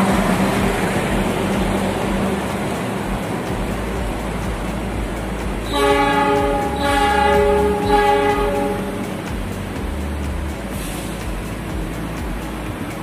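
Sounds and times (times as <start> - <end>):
rail rumble: 0.0 - 13.0
diesel locomotive horn: 5.6 - 9.3.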